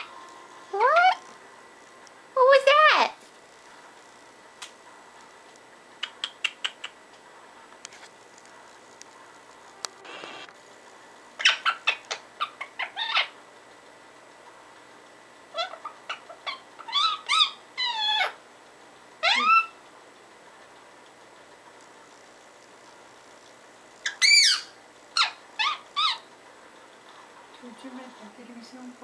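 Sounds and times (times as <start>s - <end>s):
parakeet chattering calls: 0.8s - 1.2s, 11.4s - 13.4s, 15.5s - 18.4s, 19.2s - 19.8s, 24.0s - 26.3s
parakeet clicks: 6.0s - 7.0s.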